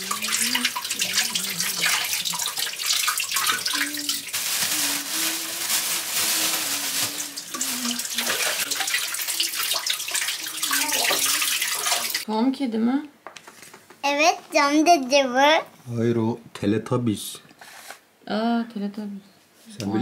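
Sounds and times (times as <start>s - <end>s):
tap water running into sink: 0.0s - 4.7s, 6.4s - 12.2s
things clattering in sink: 0.0s - 12.2s.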